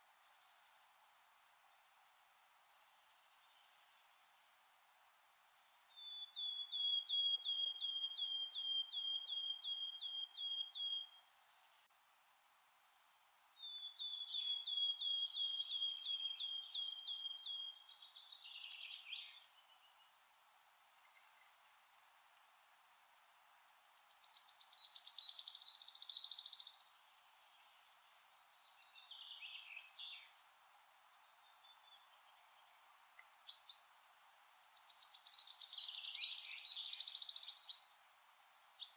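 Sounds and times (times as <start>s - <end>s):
warbler singing trill: 5.4s - 11.3s, 13.6s - 20.3s, 23.6s - 30.5s, 33.4s - 38.1s
bird singing high repeated notes: 23.9s - 27.2s, 34.7s - 38.0s
bird trill: 23.9s - 27.2s, 34.7s - 38.0s.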